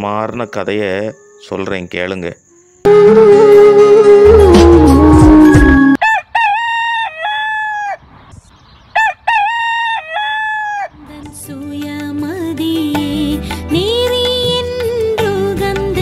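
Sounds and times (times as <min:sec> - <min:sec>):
musical sting: 0:02.9 - 0:06.0
rooster crowing: 0:02.9 - 0:08.0, 0:09.0 - 0:11.0.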